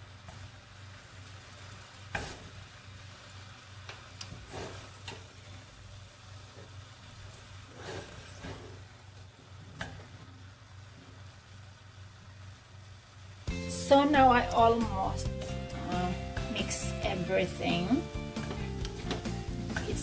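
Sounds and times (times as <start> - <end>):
faint sizzle: 0.0 - 20.0
noodles stirred in a pot: 0.1 - 10.6.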